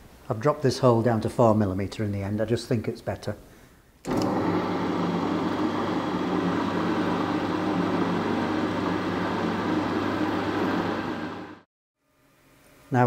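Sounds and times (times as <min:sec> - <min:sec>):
drill press drilling metal: 0:04.1 - 0:04.4.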